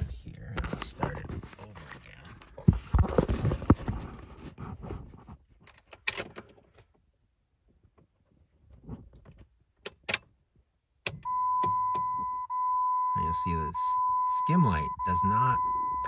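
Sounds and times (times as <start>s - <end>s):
car key and controls rattling: 5.6s - 6.8s, 11.0s - 13.1s
ignition switch click: 11.0s - 12.4s
dashboard warning tone: 11.2s - 16.0s.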